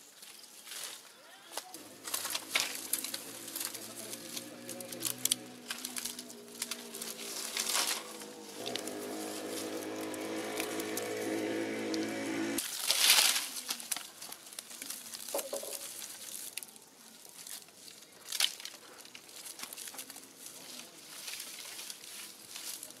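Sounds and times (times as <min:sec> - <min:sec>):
dry twigs rustling and snapping: 0:00.1 - 0:23.0
steady hum: 0:01.8 - 0:12.6.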